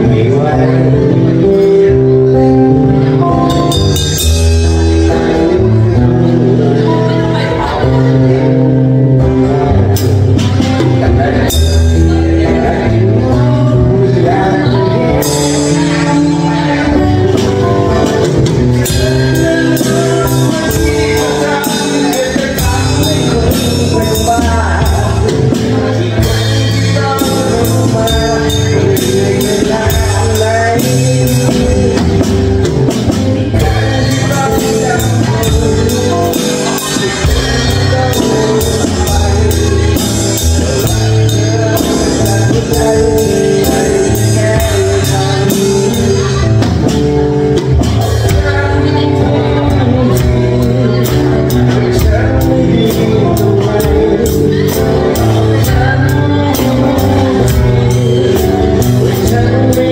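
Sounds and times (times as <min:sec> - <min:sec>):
live band music: 0:00.0 - 0:59.9
drum and cymbal hits: 0:15.1 - 0:59.9.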